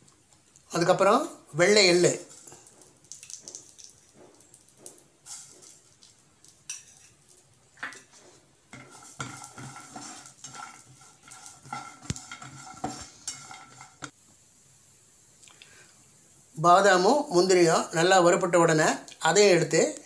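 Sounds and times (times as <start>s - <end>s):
spatula scraping a frying pan: 1.7s - 14.2s
nuts clattering against a pan: 2.2s - 14.2s.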